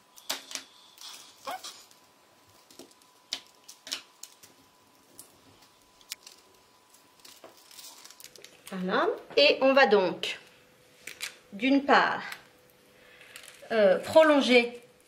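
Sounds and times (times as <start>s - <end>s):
paper rustling: 5.1s - 8.7s.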